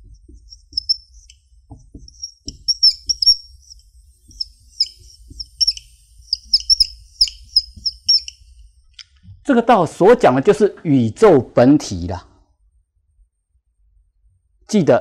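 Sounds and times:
marker tapping on board: 0:00.0 - 0:08.3
marker squeaking on whiteboard: 0:00.0 - 0:08.7.

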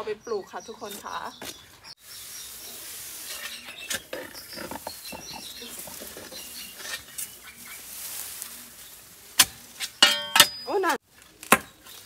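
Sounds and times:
spade scraping soil: 0:02.3 - 0:11.0.

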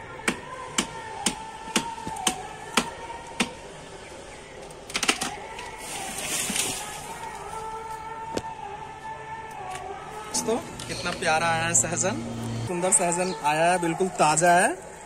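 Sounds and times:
branch cracking: 0:04.6 - 0:08.5
leaves and twigs rustling: 0:04.6 - 0:08.5.

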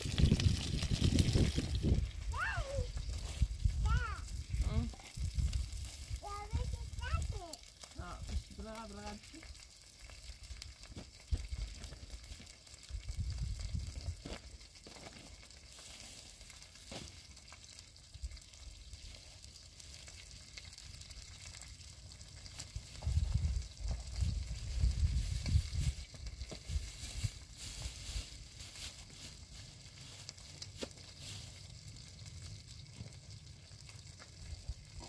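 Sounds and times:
wind gusting on microphone: 0:00.0 - 0:07.3, 0:12.9 - 0:14.2, 0:22.8 - 0:27.4
faint crackling hiss: 0:00.0 - 0:35.0.

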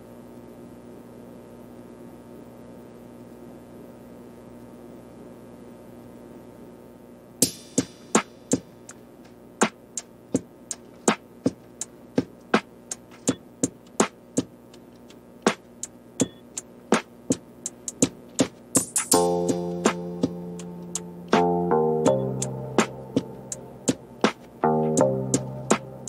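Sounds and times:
plucked notes in steady beat: 0:18.8 - 0:26.0.

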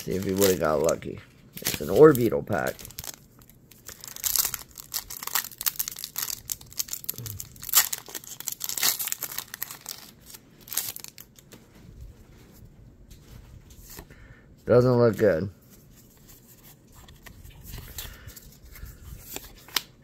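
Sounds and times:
foil wrapper crinkling and tearing: 0:00.0 - 0:11.4.

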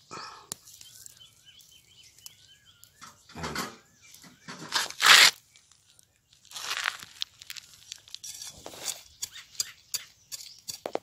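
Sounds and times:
hands rustling dry soil: 0:00.0 - 0:03.2, 0:04.0 - 0:11.0.

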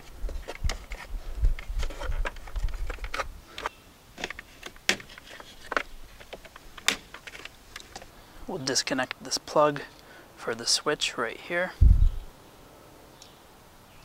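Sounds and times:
low thuds: 0:11.8 - 0:12.2.

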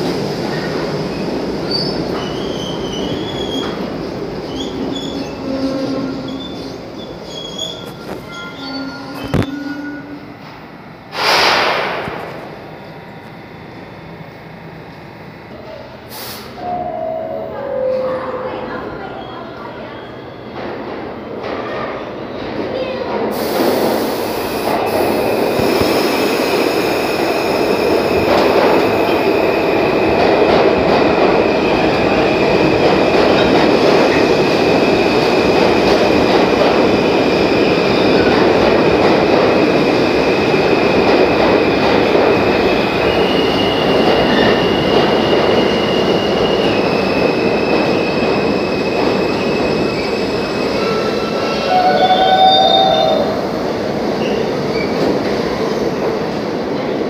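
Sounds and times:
high wheel squeal: 0:04.5 - 0:10.2
train wheels rumbling on rails: 0:18.4 - 0:57.0.

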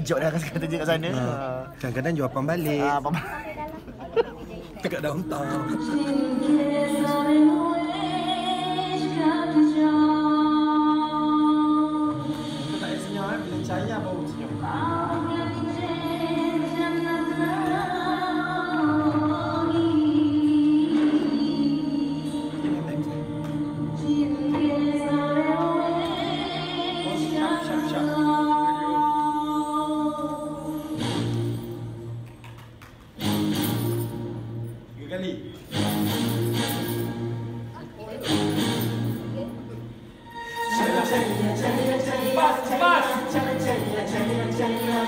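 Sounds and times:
vocal ensemble singing a chord: 0:04.9 - 0:31.7, 0:39.8 - 0:45.0
voice ornamenting above chord: 0:05.0 - 0:09.2.

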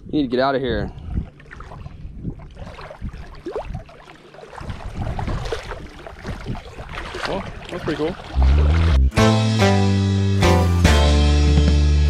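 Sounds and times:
wind on microphone: 0:00.0 - 0:03.9, 0:04.5 - 0:09.0
shallow water sloshing: 0:00.7 - 0:09.0.

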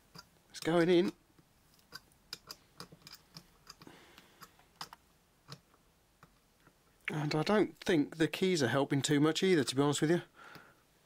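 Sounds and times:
small metal clicks and ticks: 0:00.1 - 0:01.2, 0:01.8 - 0:06.4.

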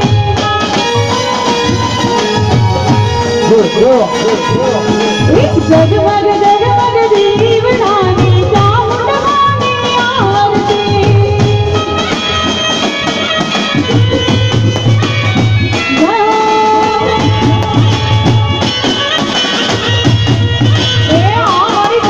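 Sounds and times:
dhol drum rhythm: 0:00.0 - 0:22.0
keyboard: 0:00.0 - 0:22.0
woman singing: 0:05.3 - 0:12.0, 0:15.9 - 0:18.2, 0:21.1 - 0:22.0.

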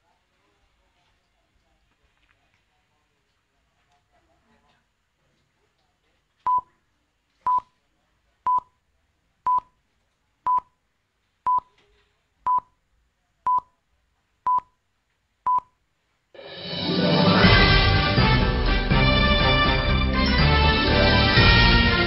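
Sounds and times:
theme music: 0:16.4 - 0:22.0.

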